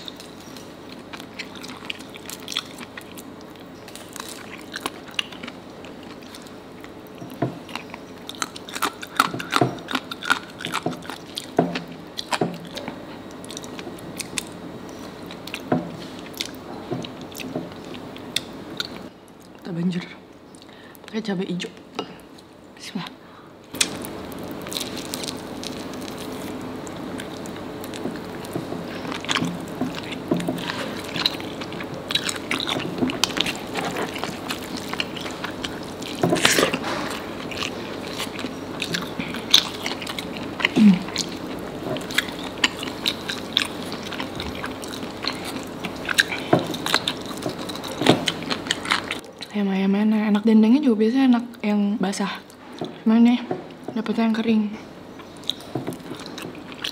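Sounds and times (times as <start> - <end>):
person biting and chewing: 0.0 - 19.4, 23.7 - 49.5, 55.2 - 56.9.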